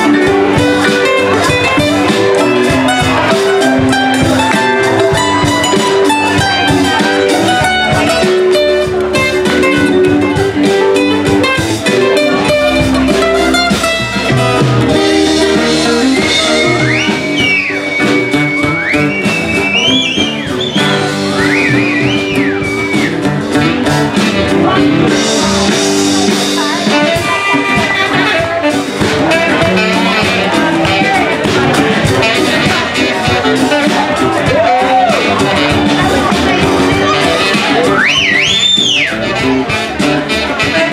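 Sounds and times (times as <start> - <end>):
live band playing: 0.0 - 40.9.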